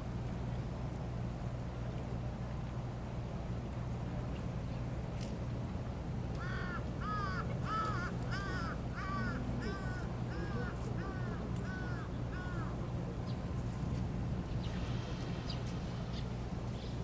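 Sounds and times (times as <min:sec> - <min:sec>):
low steady hum: 0:00.0 - 0:17.0
crow cawing: 0:06.4 - 0:12.8.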